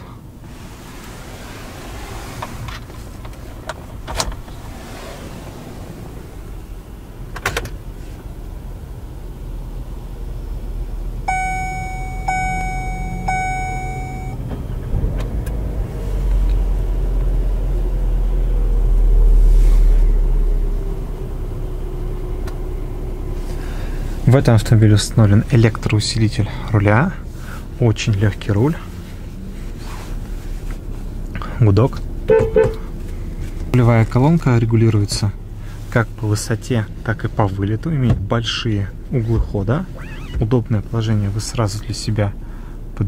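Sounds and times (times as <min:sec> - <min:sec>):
low rumble: 0:00.2 - 0:17.1
car electronic chime beeping: 0:11.3 - 0:14.4, 0:32.3 - 0:32.8.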